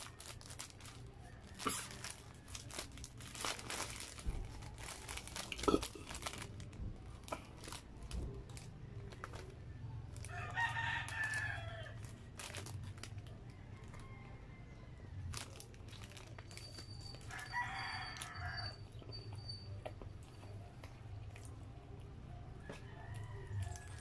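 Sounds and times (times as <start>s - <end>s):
plastic wrapper crinkling: 0.0s - 14.0s, 15.3s - 18.6s.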